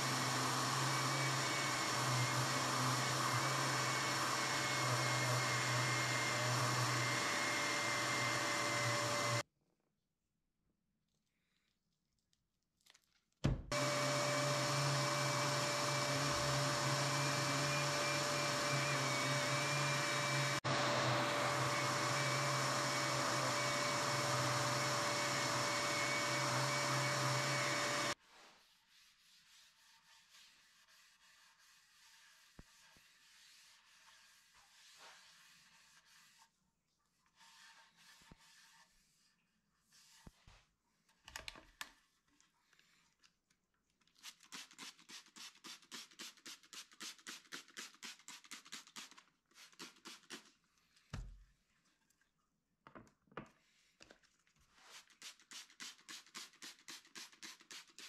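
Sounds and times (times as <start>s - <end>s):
orbital sander whining: 0.0s - 9.4s, 13.7s - 28.2s
shop vacuum humming: 0.0s - 9.4s, 13.7s - 28.2s
cloth wiping a board: 28.2s - 40.7s, 54.7s - 56.8s.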